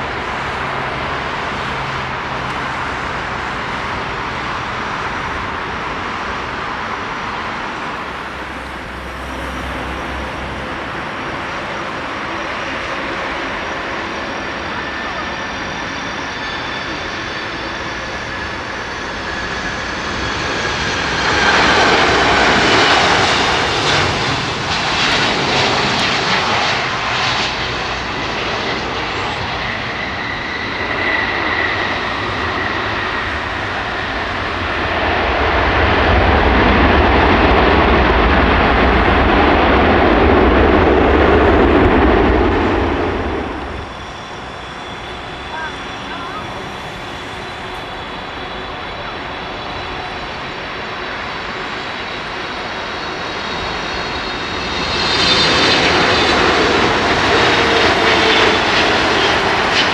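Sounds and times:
deep jet engine rumble: 0.0s - 59.9s
jet engines hissing rush: 0.0s - 59.9s.

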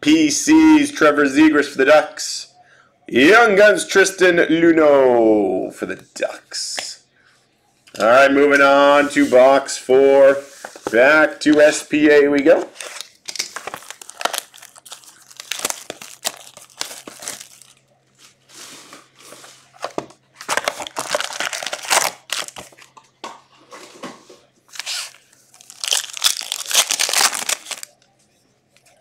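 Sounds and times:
shrink wrap crinkling and tearing: 12.5s - 18.4s, 20.4s - 22.9s, 24.7s - 28.0s
foil packs crinkling: 12.5s - 18.5s, 20.4s - 22.9s, 24.7s - 28.0s.

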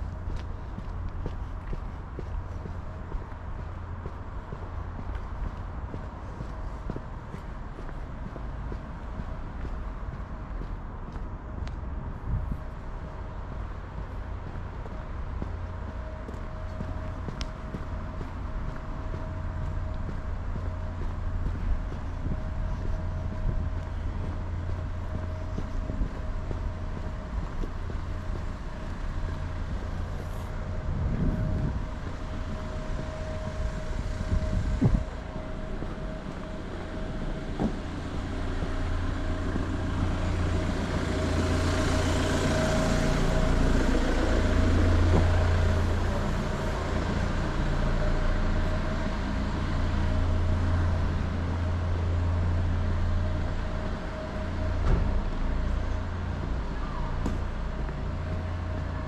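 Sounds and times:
traffic engine rumble: 0.0s - 59.0s
vehicle passing: 13.0s - 56.7s.

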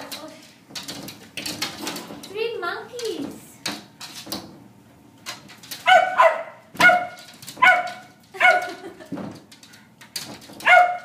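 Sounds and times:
dogs barking sharply: 5.8s - 8.9s, 10.6s - 11.0s.

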